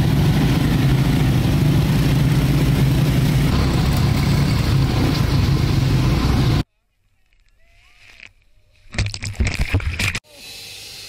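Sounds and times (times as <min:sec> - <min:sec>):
atv engines droning: 0:00.0 - 0:06.6.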